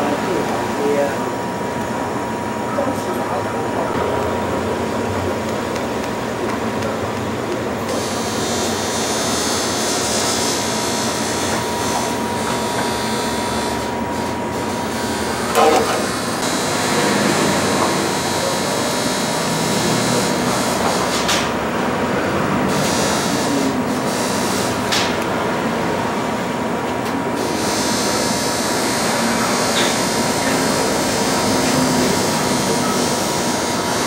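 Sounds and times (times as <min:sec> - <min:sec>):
laser welding machine hiss and hum: 0:00.0 - 0:34.0.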